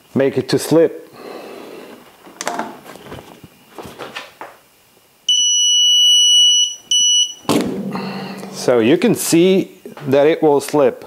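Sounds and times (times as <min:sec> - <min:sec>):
high electronic beep: 0:05.3 - 0:07.5.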